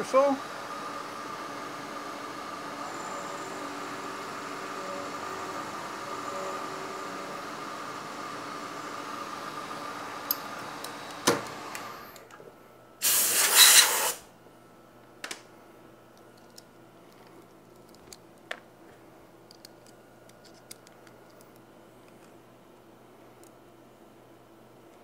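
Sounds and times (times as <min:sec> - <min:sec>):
compressed air blast hiss: 0:13.0 - 0:14.3.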